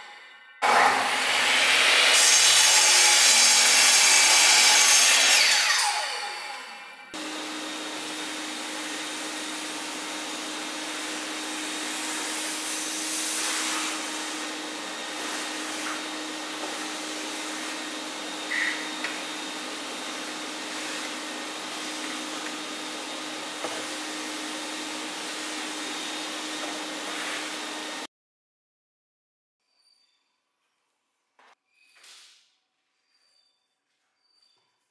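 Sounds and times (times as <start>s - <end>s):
vacuum cleaner humming: 0.6s - 28.1s
hose sucking sawdust: 7.1s - 28.1s.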